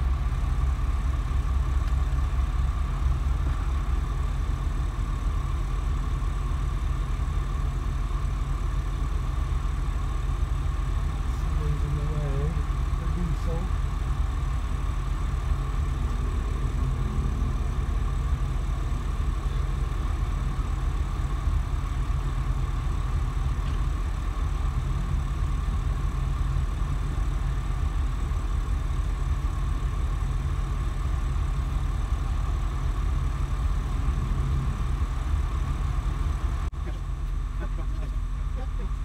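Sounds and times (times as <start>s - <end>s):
diesel boat engines droning: 0.0s - 39.0s.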